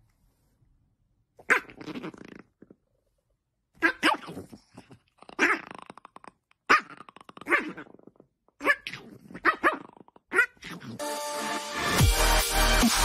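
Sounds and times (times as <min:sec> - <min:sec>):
dog growling and barking: 0:01.4 - 0:02.7, 0:03.8 - 0:11.6.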